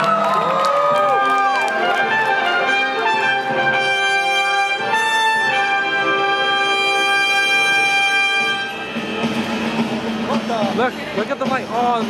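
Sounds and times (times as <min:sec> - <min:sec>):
orchestral brass fanfare: 0:00.8 - 0:10.5.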